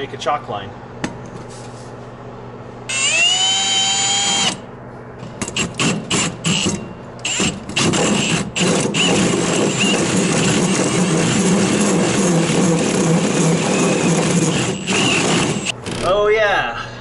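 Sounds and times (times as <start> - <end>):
cordless drill with hole saw: 2.9 - 4.6, 5.6 - 15.7.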